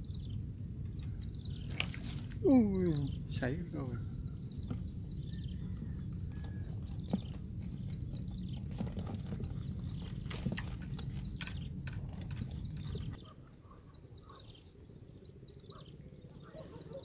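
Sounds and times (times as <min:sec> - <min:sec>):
steady low rumble: 0:00.0 - 0:13.3.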